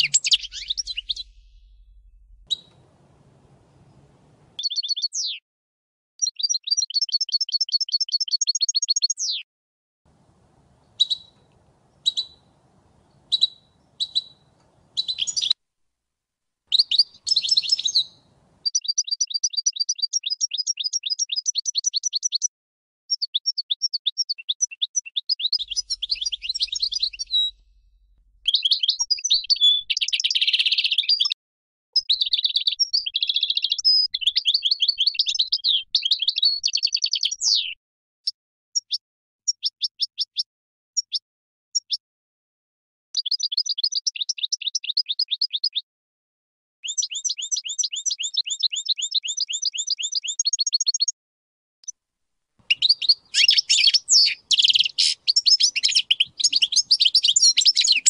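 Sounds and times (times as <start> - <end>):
goldfinch twittering and trilling: 0.0 - 1.4, 12.0 - 12.4, 15.0 - 15.6, 16.7 - 22.4, 25.4 - 27.6, 52.7 - 58.0.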